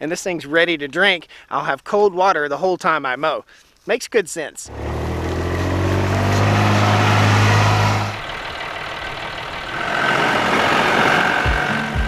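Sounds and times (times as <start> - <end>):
steady mechanical noise: 4.7 - 12.0
vehicle engine droning: 4.7 - 12.0.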